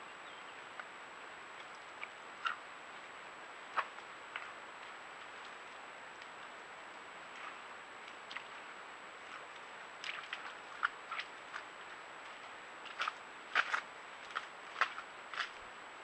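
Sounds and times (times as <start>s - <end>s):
microphone hiss: 0.0s - 16.0s
hooves stepping on dry soil and twigs: 1.5s - 15.8s.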